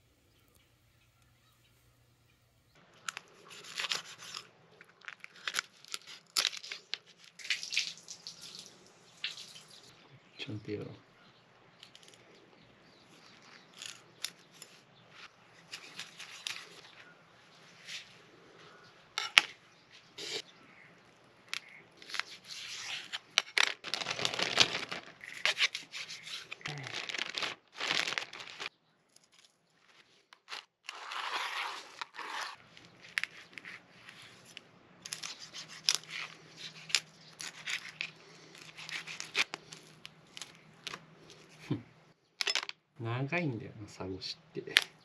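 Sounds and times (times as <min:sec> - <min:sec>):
plastic bag rustling: 0:22.0 - 0:28.7.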